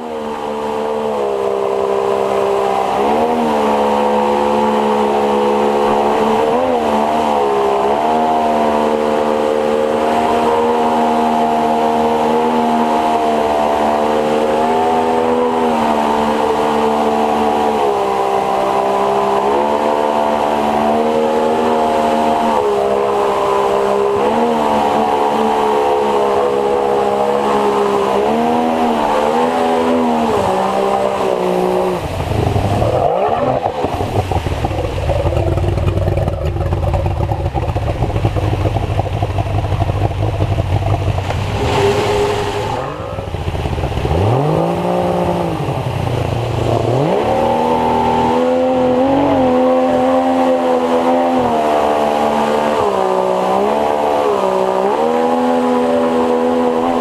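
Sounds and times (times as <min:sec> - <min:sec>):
outboard motor running hard: 0:00.0 - 0:57.0.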